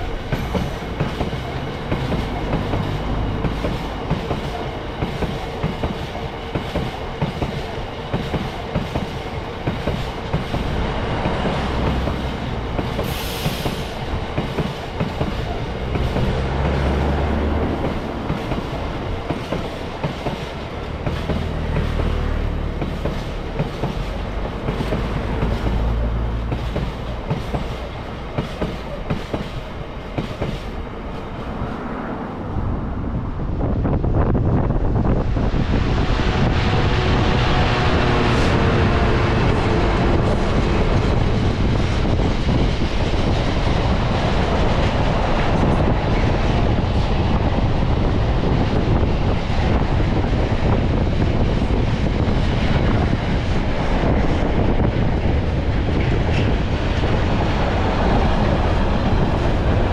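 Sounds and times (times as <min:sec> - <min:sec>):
train wheels clicking over rail joints: 0:00.0 - 0:31.2
heavy train rumble: 0:00.0 - 0:59.9.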